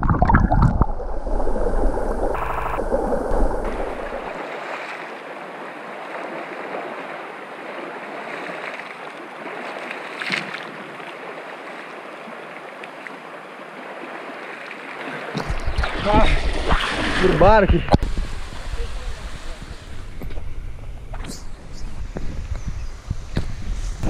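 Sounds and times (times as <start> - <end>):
water splashing by hand: 0.0 - 5.3, 6.0 - 11.9
river current rushing: 0.0 - 20.2.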